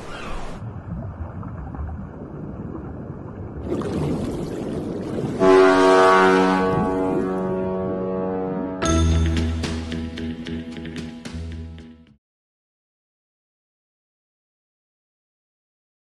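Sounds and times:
muffled rumbling sea: 0.0 - 8.8
ship horn blast: 5.4 - 9.4.

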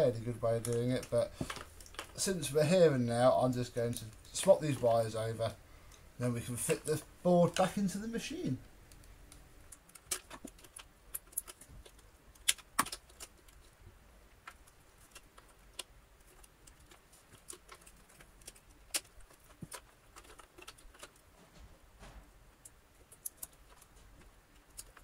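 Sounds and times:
wire terminals clicking: 8.8 - 13.7.

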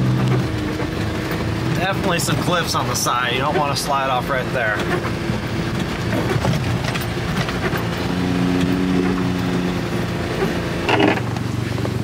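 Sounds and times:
road and tyre rumble: 0.0 - 12.0
small truck engine humming: 0.0 - 12.0.

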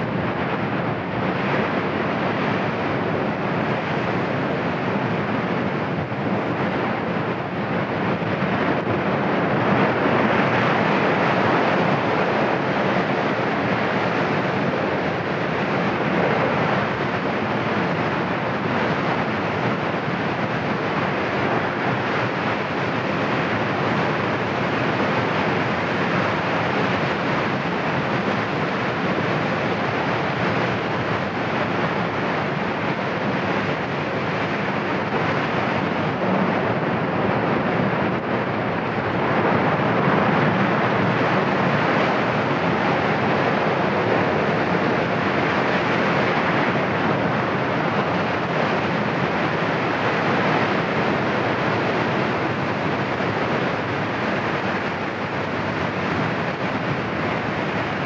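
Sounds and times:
volcano rushing rumble: 0.0 - 58.0.

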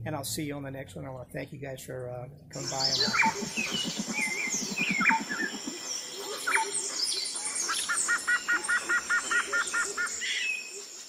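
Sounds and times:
birds chirping and whistling: 2.6 - 11.0.

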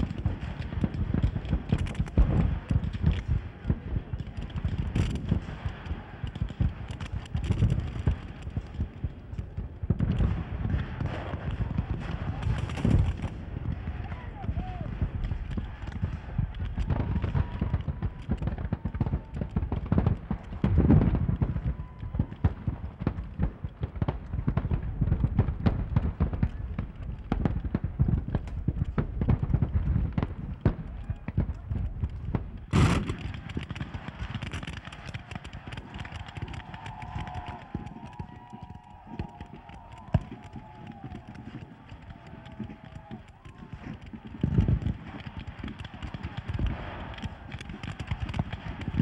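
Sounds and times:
crackle of rifle fire: 0.0 - 49.0
heavy boom: 32.7 - 33.4
sharp loud gunshot: 32.7 - 33.7.

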